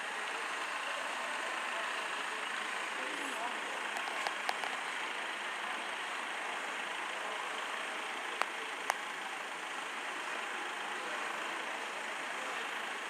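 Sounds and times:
tractor engine running: 0.0s - 13.0s
sharp clicks: 3.9s - 4.8s.

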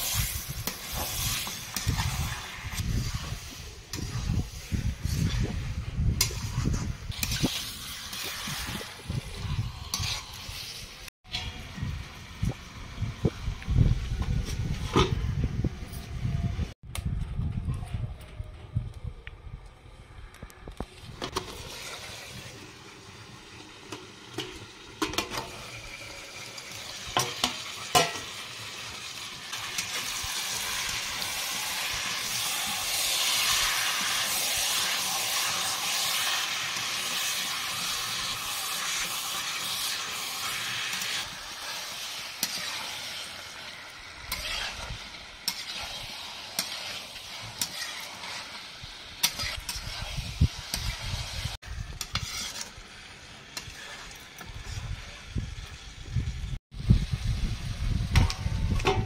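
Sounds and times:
chicken sizzling in a pan: 0.0s - 13.5s, 21.2s - 58.9s
spatula scraping a pan: 6.2s - 11.6s, 29.5s - 55.2s.

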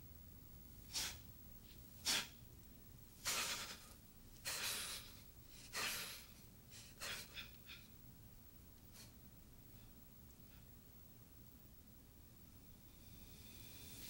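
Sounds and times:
forceful breaths through nose and mouth: 12.7s - 14.0s.

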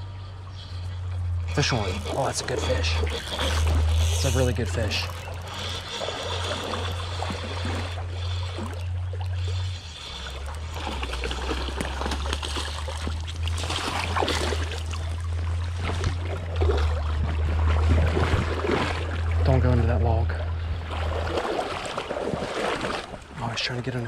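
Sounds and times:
creek water running over stones: 1.0s - 16.7s
fish splashing at the surface: 1.5s - 19.4s, 20.9s - 23.4s.

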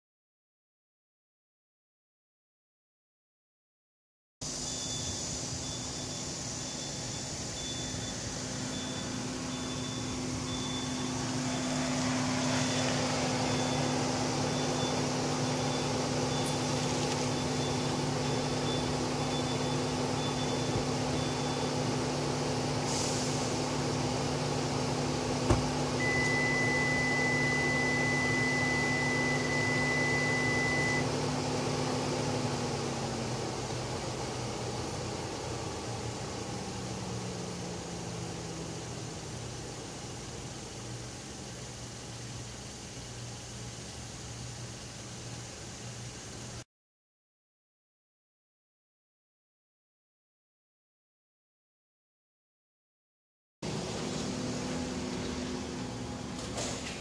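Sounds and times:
faint electronic beep: 4.4s - 21.9s, 26.0s - 31.1s
steady high beep: 4.6s - 21.8s, 26.0s - 31.1s
car engine idling: 4.6s - 43.3s, 53.6s - 57.0s.

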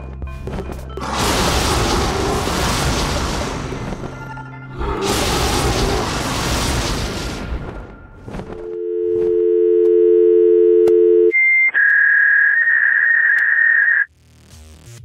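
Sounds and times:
two-note dial tone: 8.6s - 11.4s
high steady beep tone: 8.8s - 11.9s.

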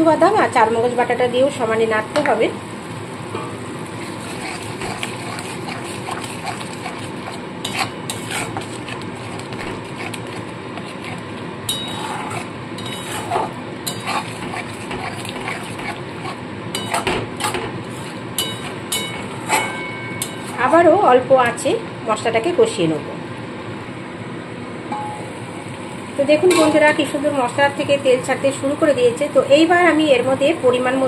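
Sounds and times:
paste sizzling: 2.8s - 20.7s
metal spatula scraping paste: 4.0s - 20.6s.

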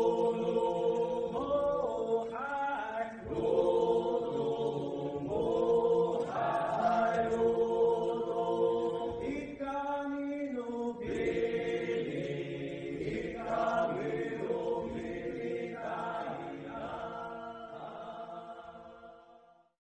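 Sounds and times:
group chanting in layered notes: 0.0s - 19.7s.

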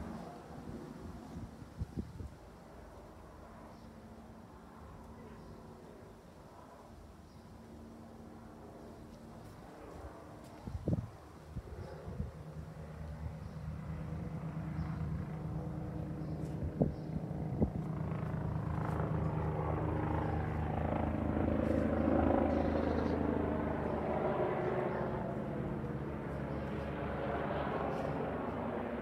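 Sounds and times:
aircraft engine hum: 7.6s - 29.0s.

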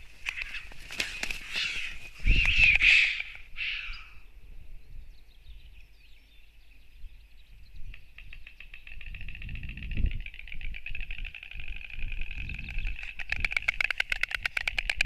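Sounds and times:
storks flapping wings: 0.0s - 3.3s, 10.1s - 15.0s
wind gusts on microphone: 0.0s - 6.0s, 6.8s - 15.0s
small birds chirping: 0.0s - 11.3s, 12.0s - 14.9s.

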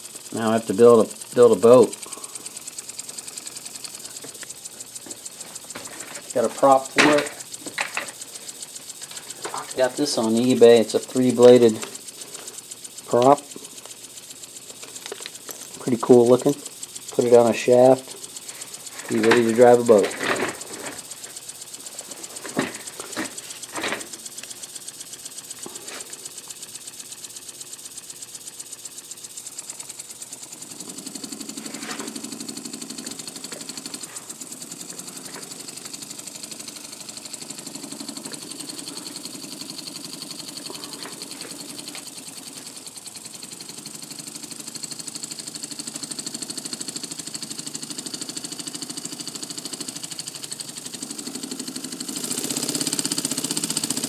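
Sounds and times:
air engine chuffing knock: 0.0s - 54.0s
clicks: 0.8s - 27.8s.

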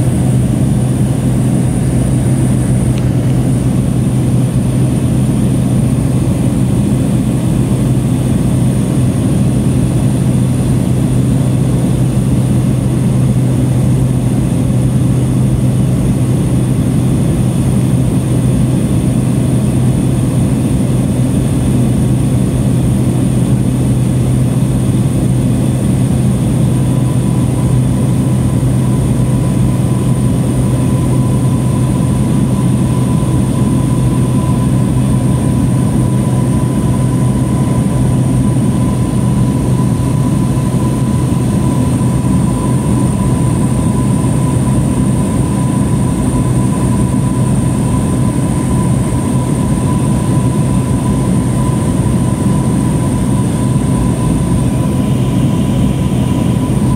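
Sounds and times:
propeller plane engine drone: 0.0s - 56.9s.

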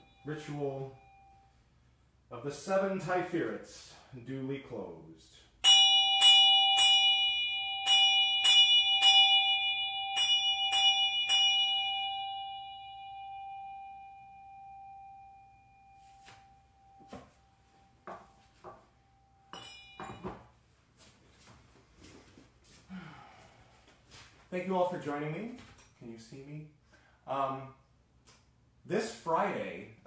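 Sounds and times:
hand bell ringing: 5.6s - 16.0s, 19.5s - 20.3s.

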